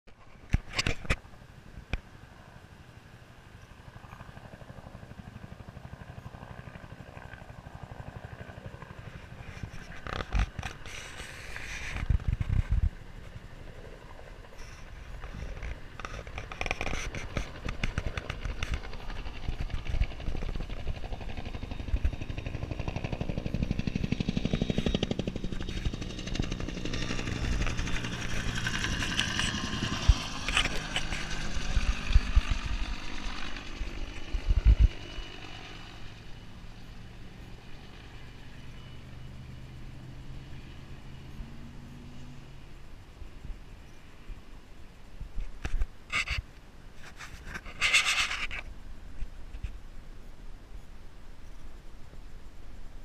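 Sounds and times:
helicopter rotor beating: 0.7s - 42.8s.

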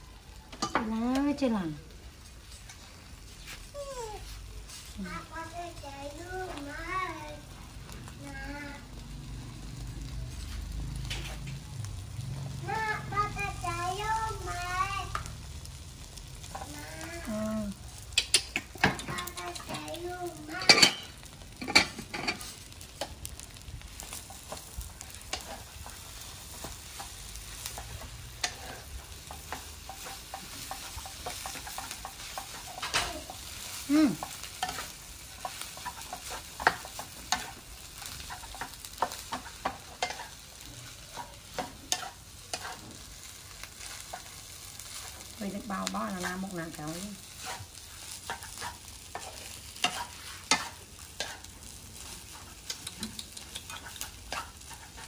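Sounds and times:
rice sizzling in frying pan: 0.0s - 55.0s
spatula scraping pan: 16.4s - 55.0s.

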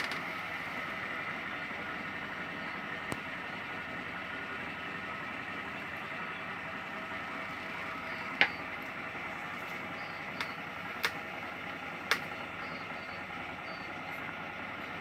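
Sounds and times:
machine hum: 0.0s - 15.0s
sharp clicks: 10.3s - 11.3s, 12.0s - 12.4s.

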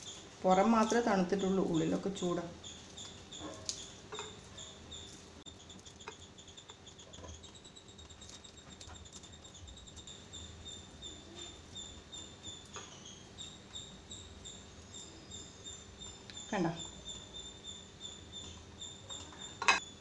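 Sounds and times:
charred skin crackling: 0.0s - 9.7s
insect chirping: 0.0s - 20.0s.

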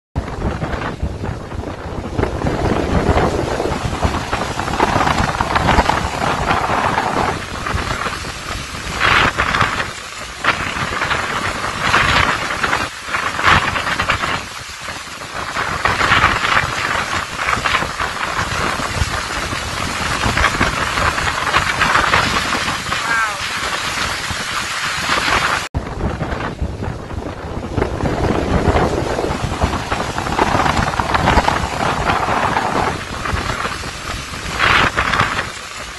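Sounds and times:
gusting wind: 0.2s - 35.9s
wind buffeting microphone: 0.2s - 35.9s
heavy rain hiss: 0.3s - 35.9s.

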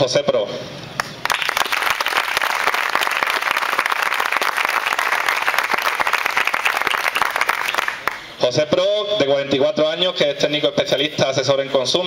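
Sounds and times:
audience applauding: 1.2s - 8.3s.

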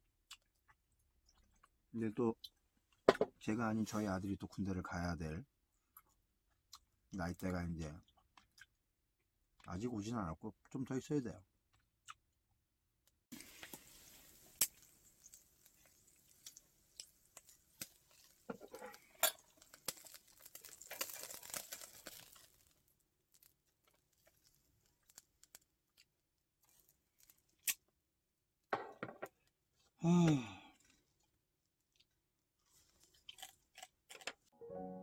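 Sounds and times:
beef sizzling on a grill: 13.3s - 23.5s.

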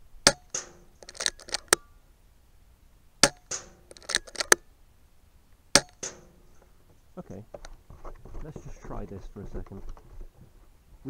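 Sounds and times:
quick mechanical clicks: 0.3s - 1.8s, 3.2s - 4.6s
air rifle shot crack: 3.2s - 3.8s.

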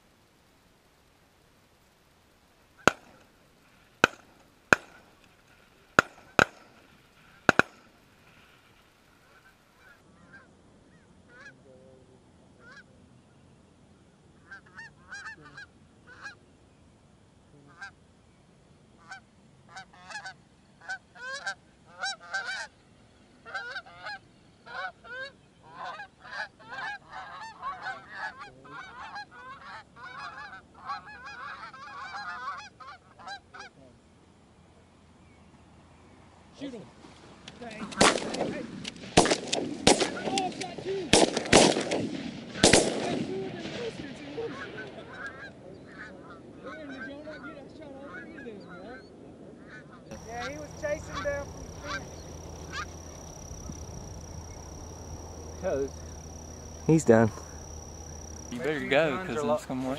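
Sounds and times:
geese honking: 2.7s - 8.6s, 14.4s - 16.4s, 19.0s - 22.8s, 23.4s - 33.8s, 44.2s - 59.9s
shotgun shots: 2.8s - 3.3s, 4.0s - 5.3s, 6.0s - 7.9s, 37.8s - 44.9s.

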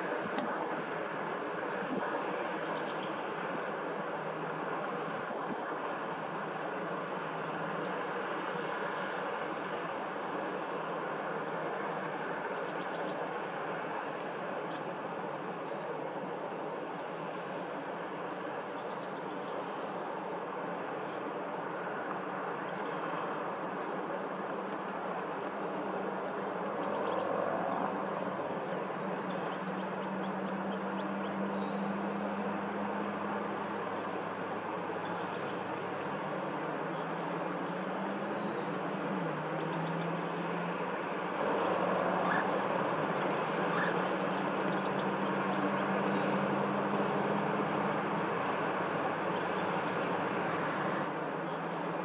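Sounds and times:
distant motor traffic rumble: 0.0s - 52.0s
low engine hum: 0.0s - 52.0s
faint bird chirps: 1.5s - 1.8s.

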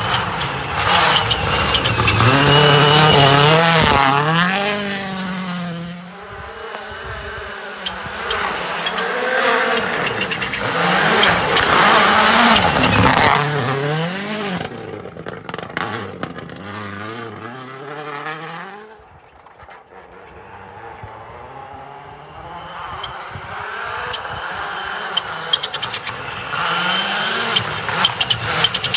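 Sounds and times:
rally car engine revving past: 0.0s - 19.0s.

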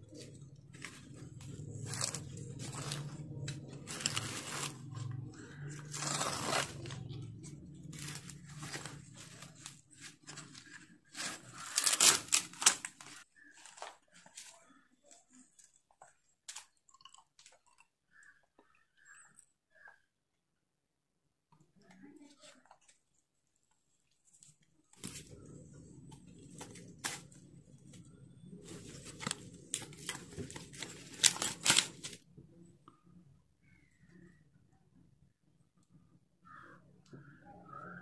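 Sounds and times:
corn husk leaves tearing: 0.1s - 14.5s, 28.7s - 32.2s.

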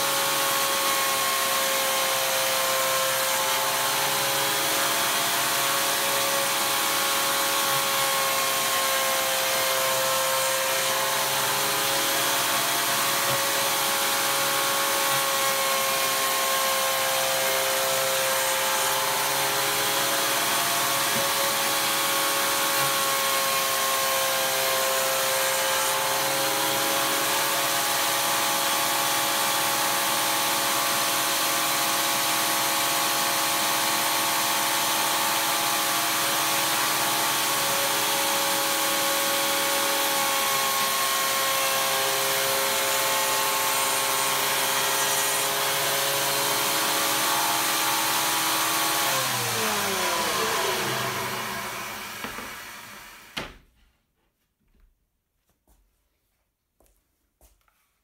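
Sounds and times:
electric jointer cutting wood: 0.0s - 53.6s
motor winding down: 36.2s - 53.4s.

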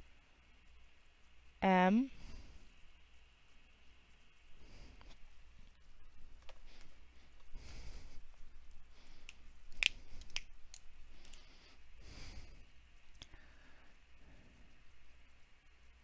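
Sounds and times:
soft sighing breaths: 6.5s - 15.0s.

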